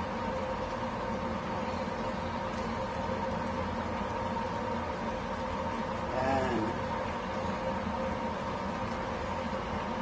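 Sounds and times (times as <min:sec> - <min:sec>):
faint high whine: 0:00.0 - 0:10.0.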